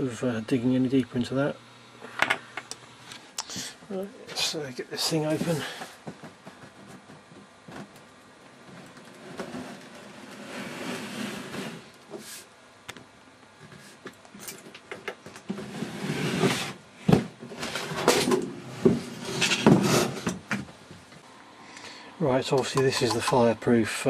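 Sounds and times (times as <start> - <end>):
metal scraping slide: 9.2 - 12.4.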